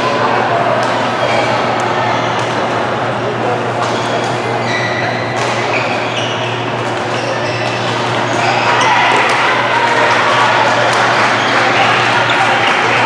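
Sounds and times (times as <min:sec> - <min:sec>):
shoe squeaks: 0:03.9 - 0:09.1
racket hitting shuttlecock: 0:05.3 - 0:06.1.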